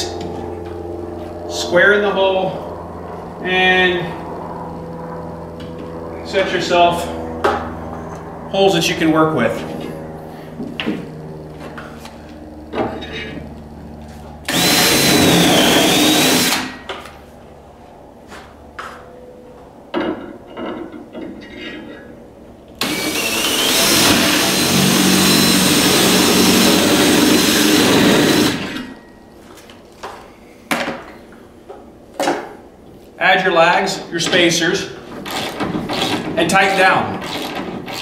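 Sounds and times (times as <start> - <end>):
cordless drill whining: 14.5 - 16.8, 22.8 - 29.0.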